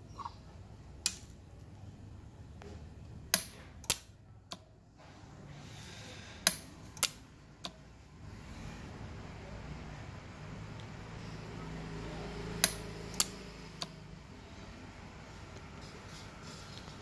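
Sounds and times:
spot welder snapping: 3.3s - 4.1s, 12.6s - 14.0s.

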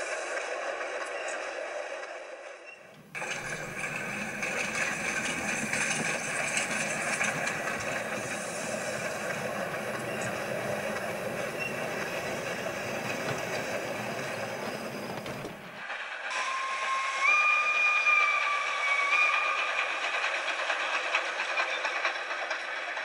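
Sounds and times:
steam train rumbling hiss: 0.0s - 23.0s
steam locomotive whistle: 16.3s - 20.0s.

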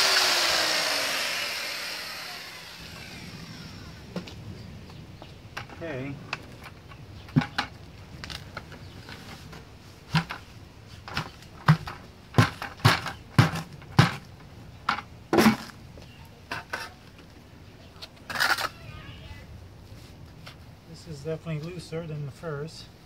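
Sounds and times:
plastic bucket banging: 11.1s - 14.2s.

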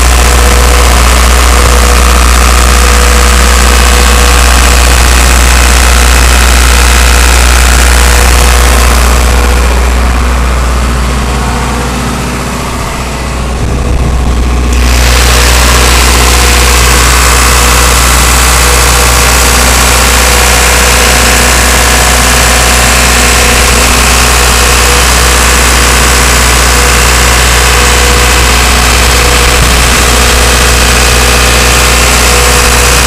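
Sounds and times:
diesel generator running: 0.0s - 33.0s.

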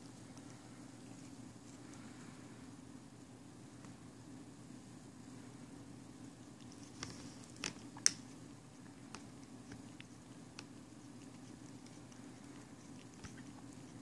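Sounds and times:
faint low hum: 0.0s - 14.0s
cat licking potato chip: 0.2s - 2.5s, 6.5s - 14.0s.

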